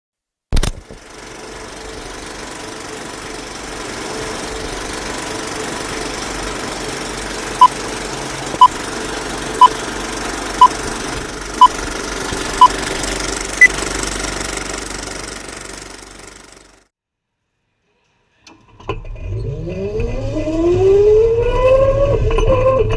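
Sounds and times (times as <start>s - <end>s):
film projector clatter: 0.6s - 16.9s.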